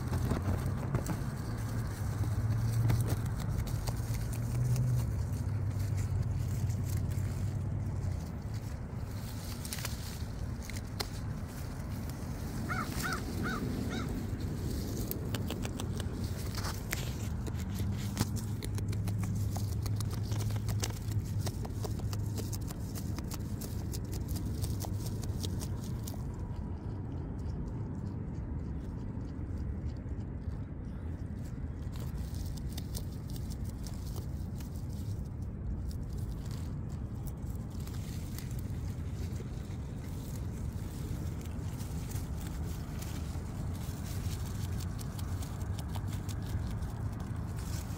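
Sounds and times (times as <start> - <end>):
foliage rustling: 0.0 - 26.7, 31.7 - 47.9
beaver chewing with crunching clicks: 0.0 - 47.9
steady low rumble: 0.0 - 47.9
bird calling: 12.7 - 14.2.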